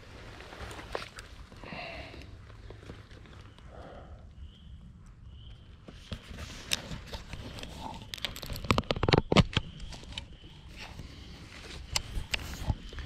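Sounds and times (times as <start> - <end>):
rustling in dry leaves: 0.0 - 3.5.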